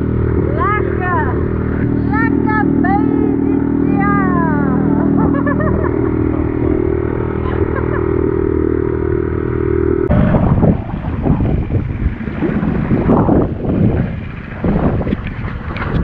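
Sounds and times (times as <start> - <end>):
outboard motor running: 0.0 - 16.0
water splashing: 0.0 - 16.0
wind rumbling on microphone: 0.0 - 16.0.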